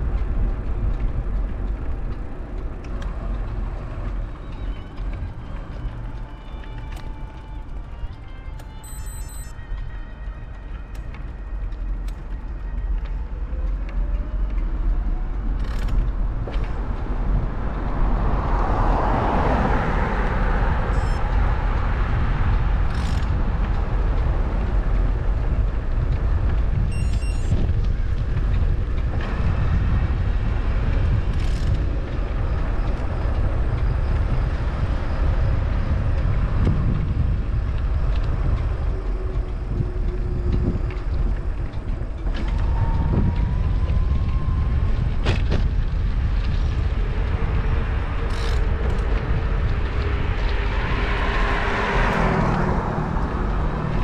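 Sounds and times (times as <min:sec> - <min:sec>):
road and wind noise: 0:00.0 - 0:54.0
vehicle passing: 0:46.0 - 0:54.0.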